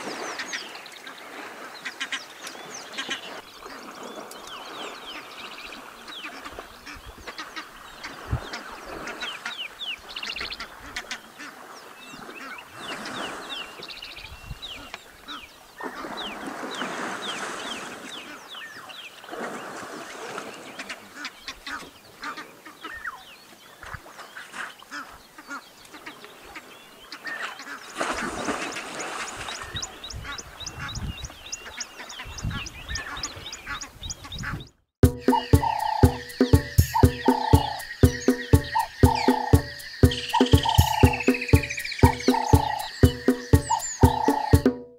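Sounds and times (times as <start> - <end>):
elephants splashing in water: 15.8 - 21.3, 27.4 - 29.8
high falling bird chirps: 35.0 - 44.7.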